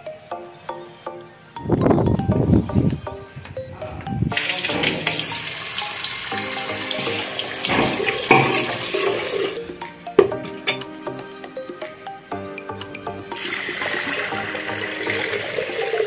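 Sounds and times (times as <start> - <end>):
background music: 0.0 - 16.0
water running in a stream: 4.3 - 9.6, 13.4 - 16.0.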